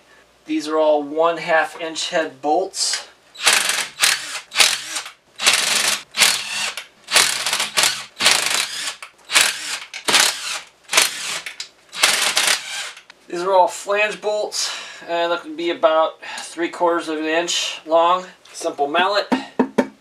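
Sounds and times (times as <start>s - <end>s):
impact driver rattling: 3.4s - 13.1s.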